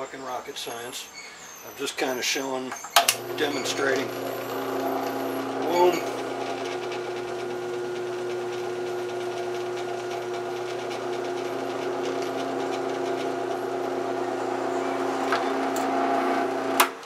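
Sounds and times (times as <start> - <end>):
drill press motor hum: 3.1 - 16.9
drill bit scratching metal: 3.2 - 16.8.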